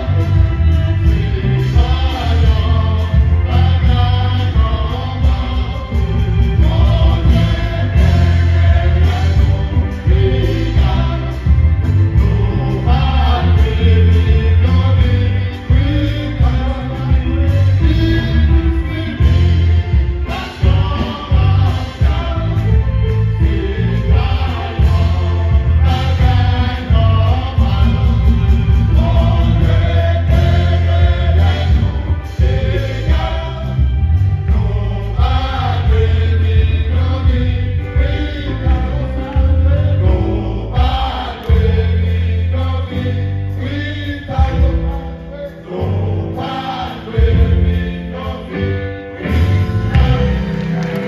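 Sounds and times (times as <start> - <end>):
live band with heavy bass: 0.0 - 51.0
men's vocal group singing gospel: 0.0 - 51.0.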